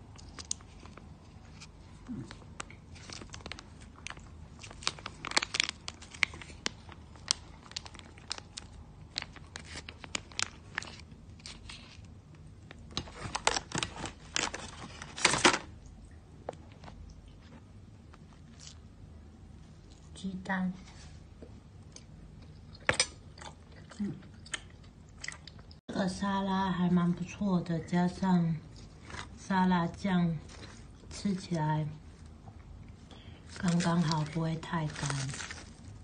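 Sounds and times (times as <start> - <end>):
plastic sachet crinkling: 0.1 - 15.7, 33.4 - 36.0.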